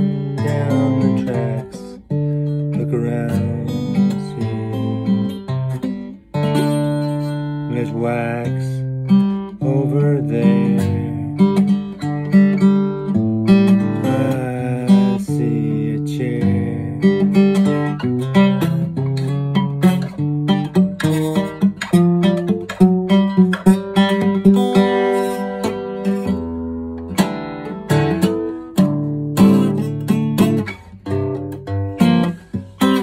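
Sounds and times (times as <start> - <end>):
acoustic guitar playing: 0.0 - 33.0.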